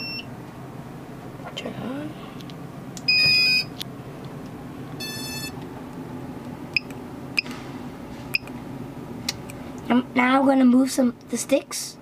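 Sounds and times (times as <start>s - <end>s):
electronic buzzer beeps: 0.0s - 0.3s, 3.1s - 3.7s, 5.0s - 5.6s.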